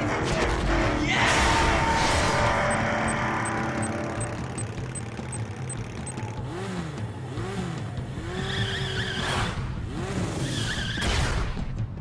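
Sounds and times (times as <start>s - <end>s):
cartoon engine humming and revving: 2.0s - 11.1s
quick high beeps: 2.5s - 6.4s.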